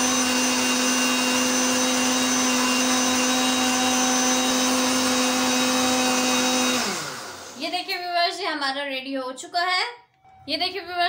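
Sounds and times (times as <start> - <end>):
blender motor whine and churning: 0.0 - 7.9.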